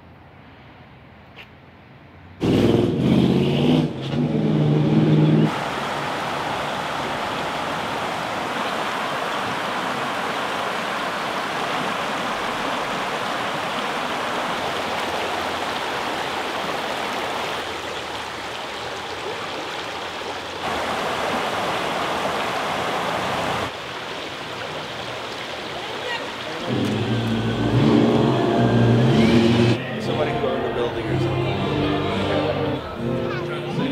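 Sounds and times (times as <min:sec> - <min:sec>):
creek water babbling over rocks: 0:05.5 - 0:28.6.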